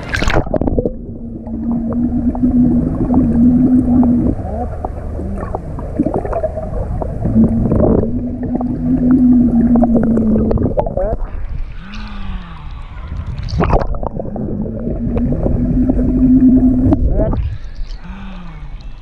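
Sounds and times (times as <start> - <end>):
bubbles blown underwater: 0.0 - 11.4, 13.4 - 17.5
low watery rumble: 0.0 - 19.0
water gurgling: 0.0 - 19.0
person humming: 3.8 - 5.7, 11.8 - 12.9, 17.3 - 19.0.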